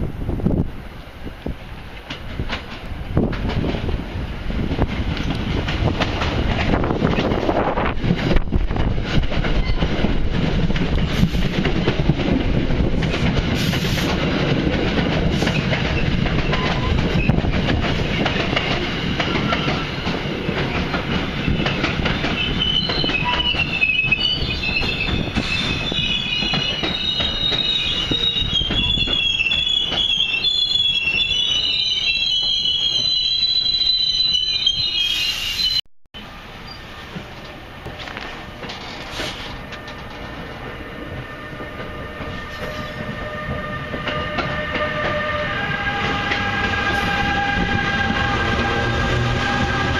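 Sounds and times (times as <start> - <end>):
train wheels rumbling: 0.0 - 49.9
high-pitched wheel squeals: 22.2 - 35.8, 41.3 - 49.9.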